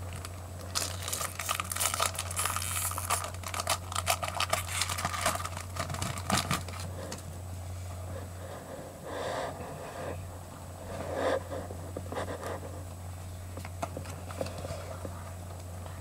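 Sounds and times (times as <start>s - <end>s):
low electrical hum: 0.0s - 16.0s
soft breaths: 6.8s - 13.5s.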